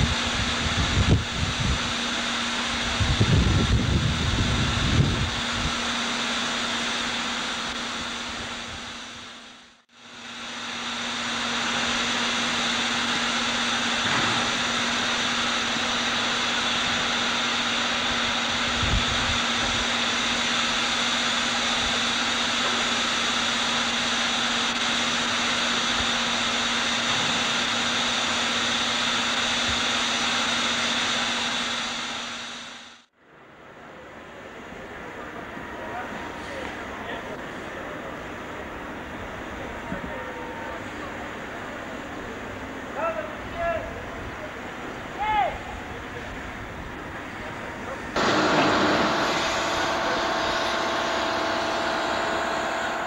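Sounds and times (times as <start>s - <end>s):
steam hissing: 0.0s - 33.0s, 44.3s - 53.0s.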